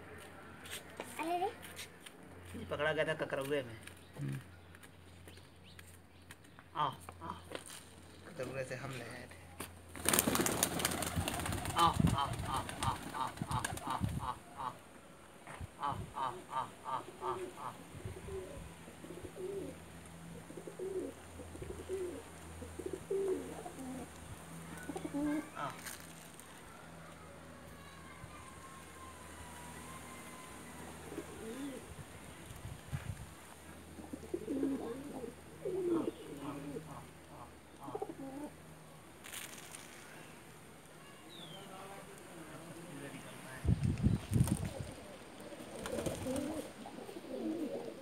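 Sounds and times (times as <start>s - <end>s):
pigeons cooing: 10.1s - 14.8s, 15.8s - 24.1s, 24.7s - 26.0s, 31.0s - 31.9s, 33.8s - 38.6s, 44.6s - 48.0s.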